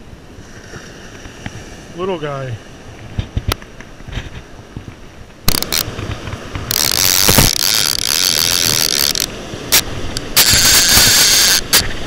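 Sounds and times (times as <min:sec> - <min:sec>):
fishing reel clicker ratcheting: 0:05.5 - 0:05.9, 0:06.7 - 0:11.8.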